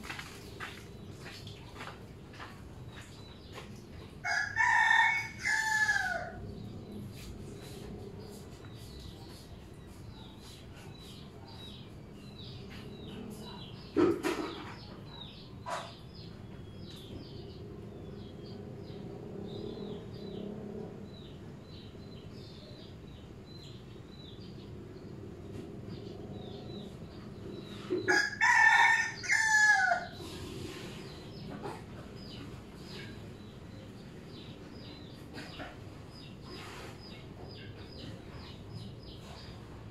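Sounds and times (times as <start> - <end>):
small birds chirping: 0.0 - 5.6, 6.2 - 28.3, 30.1 - 39.9
rooster crowing: 4.2 - 6.4, 28.1 - 30.2.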